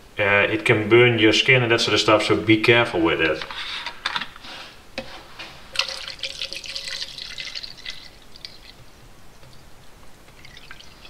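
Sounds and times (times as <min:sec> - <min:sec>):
liquid splashing into plastic cup: 0:05.7 - 0:08.8.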